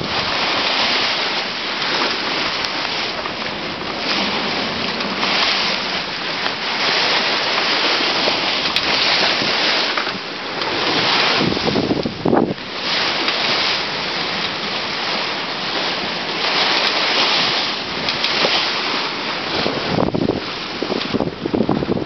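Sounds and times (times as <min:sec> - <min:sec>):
water rushing past hull: 0:00.0 - 0:22.0
wind on microphone: 0:00.0 - 0:22.0.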